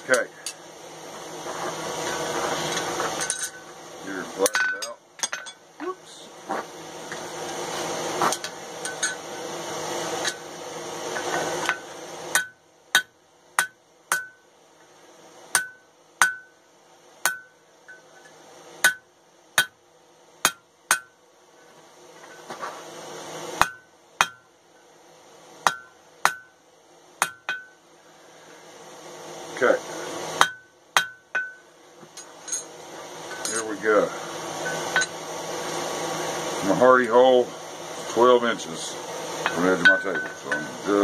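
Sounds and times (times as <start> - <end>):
hammer striking steel on anvil: 11.6 - 14.4, 15.5 - 16.5, 17.2 - 18.1, 18.8 - 19.0, 19.6 - 19.8, 20.4 - 21.2, 23.6 - 24.4, 25.6 - 26.5, 27.2 - 27.8, 30.4 - 31.6, 39.4 - 40.7.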